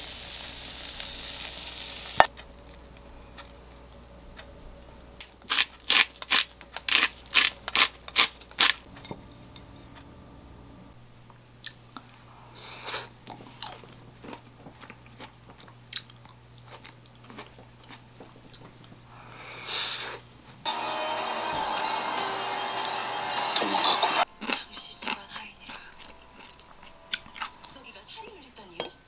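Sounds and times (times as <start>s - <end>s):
chewing: 2.3s - 4.5s, 12.9s - 19.4s, 24.2s - 27.8s
spoon clinking on bowl: 5.2s - 9.9s, 28.8s - 29.0s.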